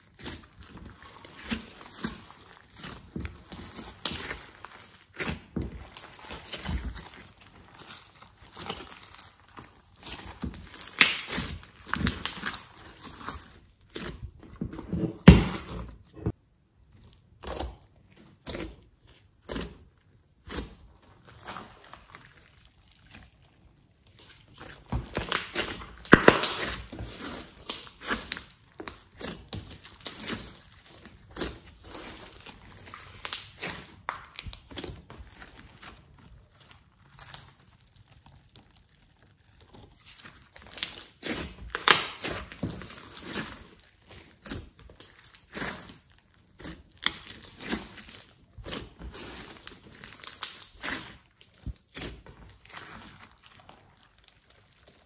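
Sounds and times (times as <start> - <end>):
slime sticky crackles and pops: 0.1 - 14.1, 24.1 - 55.0.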